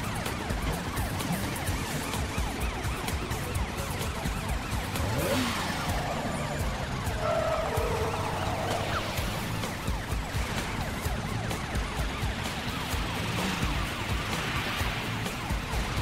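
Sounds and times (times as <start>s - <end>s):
police siren wailing: 1.9s - 12.1s
rushing whoosh: 7.0s - 9.8s.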